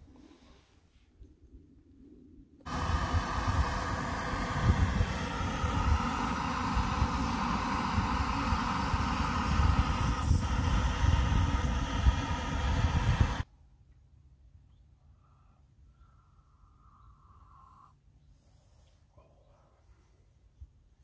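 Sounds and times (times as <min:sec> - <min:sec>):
gas stove roaring hiss: 0:02.7 - 0:13.5.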